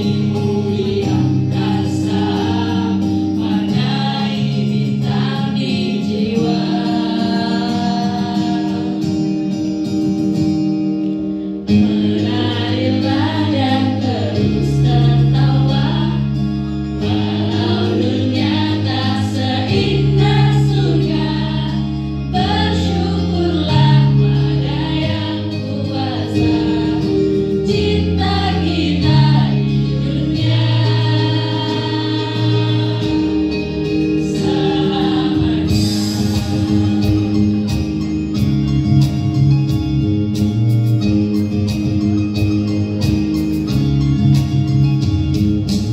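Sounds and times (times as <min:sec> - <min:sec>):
mixed choir singing: 0:00.0 - 0:09.3, 0:11.7 - 0:38.1
backing track music: 0:00.0 - 0:45.9.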